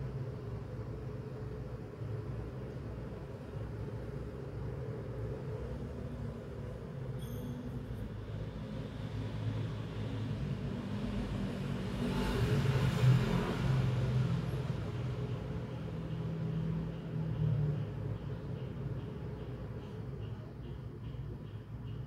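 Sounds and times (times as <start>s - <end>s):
vehicle passing: 8.5s - 18.0s.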